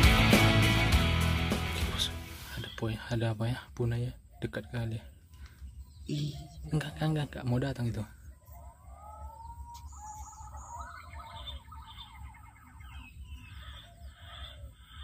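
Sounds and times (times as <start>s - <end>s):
high bird chirps: 4.1s - 15.0s
pigeon whistling calls: 8.2s - 15.0s.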